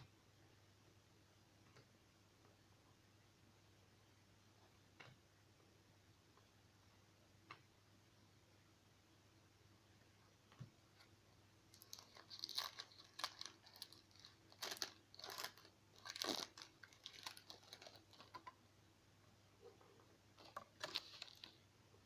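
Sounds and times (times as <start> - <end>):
wrapper tearing and crinkling: 11.8 - 18.5, 20.4 - 21.6.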